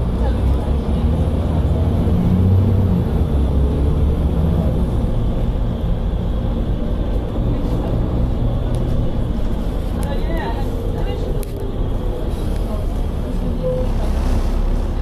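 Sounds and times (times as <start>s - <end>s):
bus diesel engine droning: 0.0s - 15.0s.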